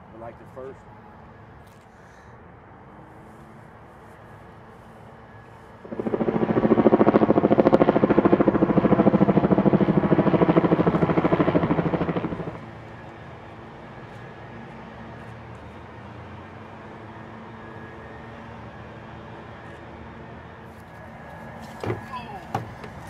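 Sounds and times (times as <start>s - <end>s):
helicopter rotor blades beating: 5.8s - 15.2s.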